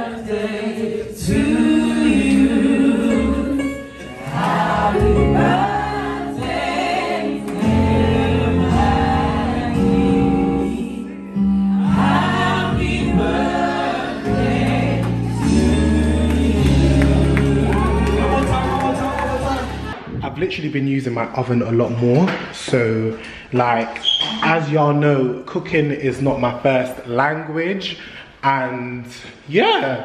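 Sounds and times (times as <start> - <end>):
voices singing together: 0.0 - 20.0
held bass notes: 4.3 - 20.6.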